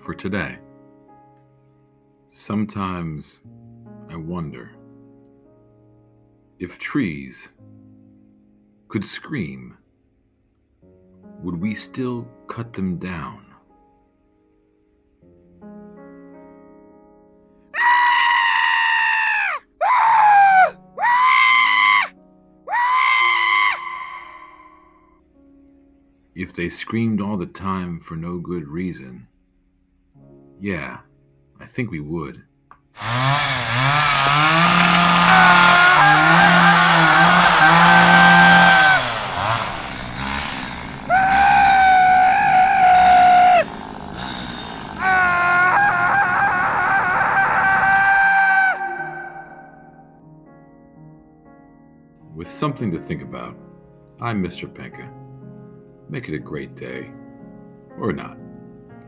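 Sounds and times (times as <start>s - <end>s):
soft background music: 0.0s - 17.8s, 19.6s - 23.9s, 24.7s - 33.0s, 49.8s - 59.0s
long high screams: 17.8s - 24.9s, 33.0s - 50.0s
high wailing tones: 22.7s - 24.8s, 33.0s - 50.0s
chainsaw cutting wood: 33.0s - 49.6s.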